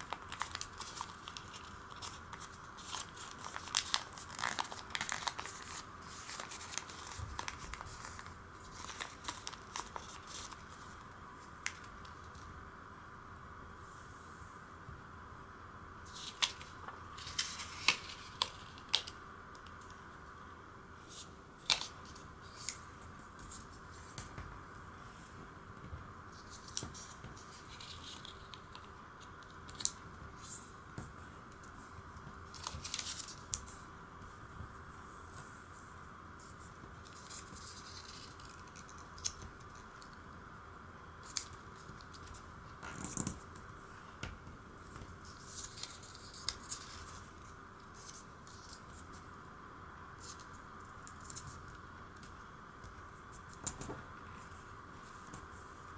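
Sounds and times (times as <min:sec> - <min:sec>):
paper crinkling: 0:00.0 - 0:11.0, 0:16.1 - 0:19.2, 0:26.3 - 0:30.6, 0:32.4 - 0:33.8, 0:36.4 - 0:40.2, 0:44.8 - 0:49.2
faint steady hiss: 0:00.0 - 0:55.9.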